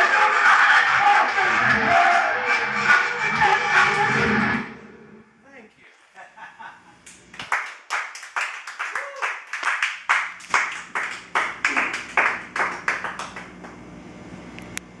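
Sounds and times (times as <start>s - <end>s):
hand clapping: 7.1s - 13.8s
steady low hum: 10.3s - 15.0s.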